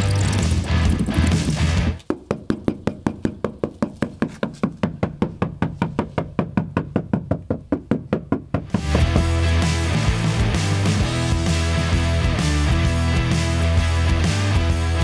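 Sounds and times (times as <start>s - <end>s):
music: 0.0s - 2.0s, 8.7s - 15.0s
knuckles knocking on sheet metal: 2.1s - 9.4s.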